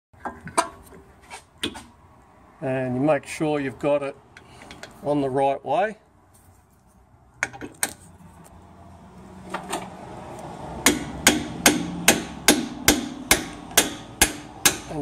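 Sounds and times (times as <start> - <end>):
hammer striking metal: 10.8 - 15.0.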